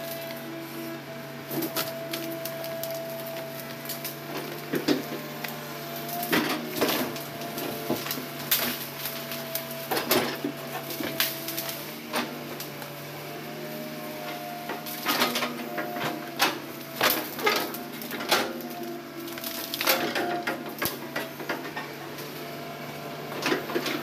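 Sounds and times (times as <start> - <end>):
excavator engine drone: 0.0 - 24.0
sharp clanks and cracks: 16.4 - 21.9.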